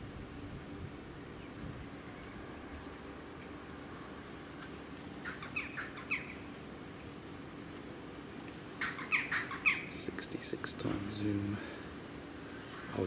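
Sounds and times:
low background hum: 0:00.0 - 0:13.0
bird calling sharply: 0:05.2 - 0:06.5, 0:08.8 - 0:10.8.

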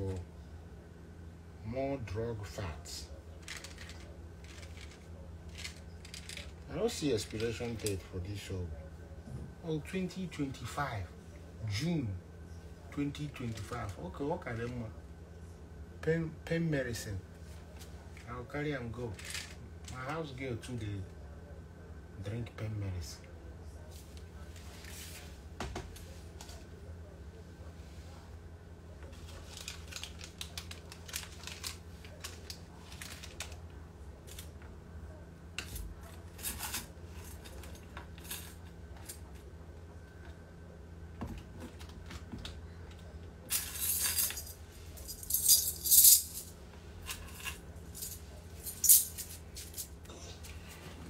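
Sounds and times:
steady low hum: 0:00.0 - 0:51.0
items clicking and rattling: 0:03.4 - 0:08.0, 0:19.1 - 0:20.0, 0:29.0 - 0:34.7, 0:35.6 - 0:39.5, 0:41.2 - 0:50.0.

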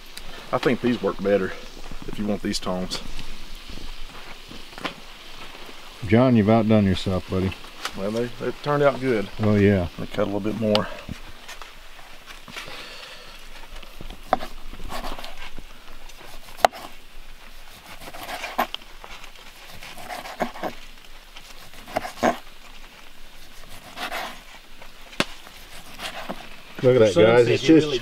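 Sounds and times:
knife slicing meat: 0:19.7 - 0:20.8, 0:21.6 - 0:22.4, 0:25.5 - 0:26.5.

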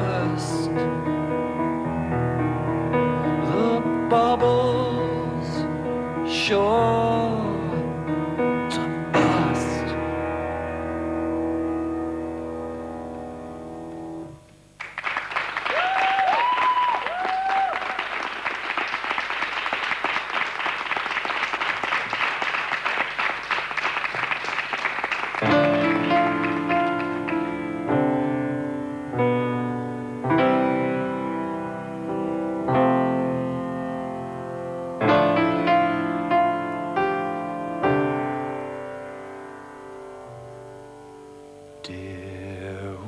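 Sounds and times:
grand piano chords: 0:00.0 - 0:14.8, 0:24.6 - 0:43.0
audience applauding: 0:14.8 - 0:27.7
whistles from audience: 0:15.7 - 0:18.1.

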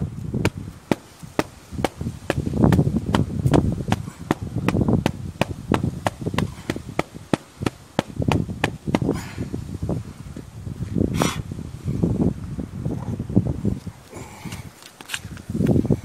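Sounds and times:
air filter knocking on brick: 0:00.4 - 0:09.1.

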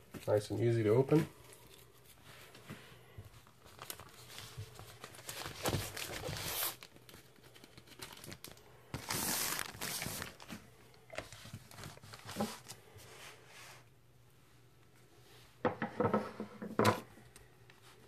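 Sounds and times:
plastic wrap tearing and crinkling: 0:03.4 - 0:10.7.

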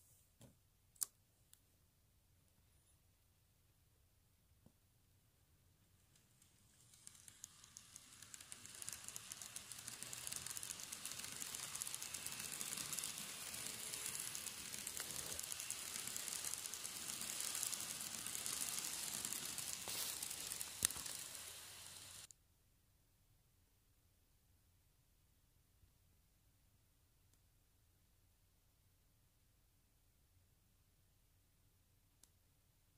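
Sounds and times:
model train rattling hiss: 0:06.0 - 0:22.3.

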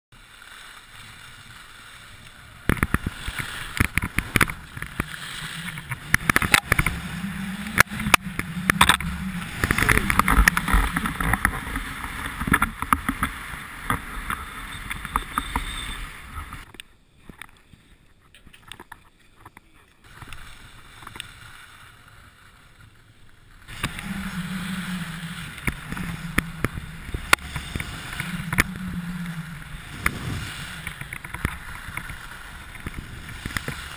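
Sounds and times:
skis scraping over snow: 0:00.1 - 0:18.7, 0:19.6 - 0:33.9
wind buffeting microphone: 0:02.6 - 0:16.7, 0:23.7 - 0:33.9.

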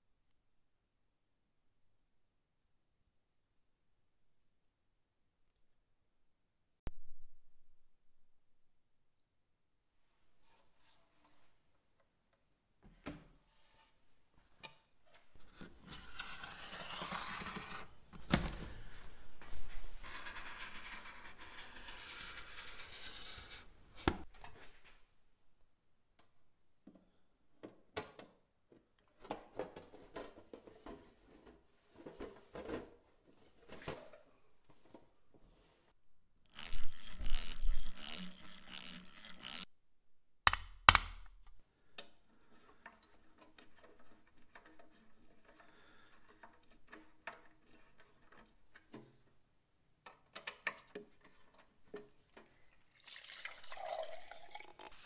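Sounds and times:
knife scraping along metal sheet: 0:20.0 - 0:23.7.

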